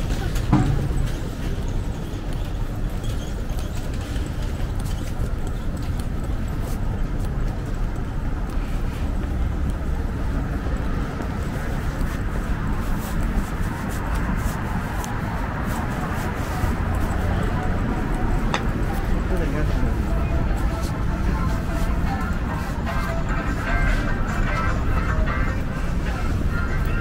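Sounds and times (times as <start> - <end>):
traffic rumble: 0.0 - 27.0
crowd noise: 9.5 - 27.0.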